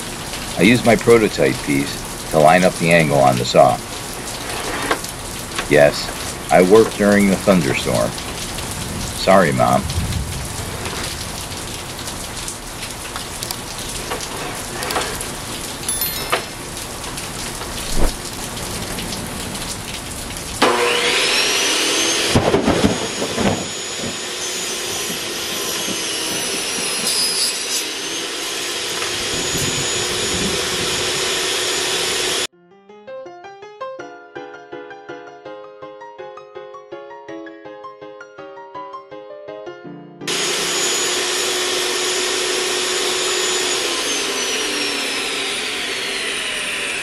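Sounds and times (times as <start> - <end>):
heavy rain falling: 0.0 - 26.0
table saw motor whining: 20.6 - 32.5, 40.3 - 47.0.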